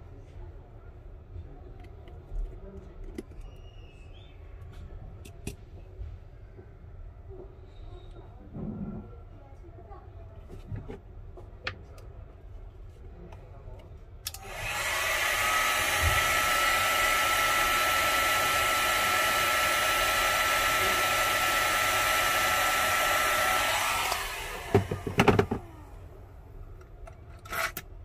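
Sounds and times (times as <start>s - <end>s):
hot air gun blowing: 14.3s - 25.8s.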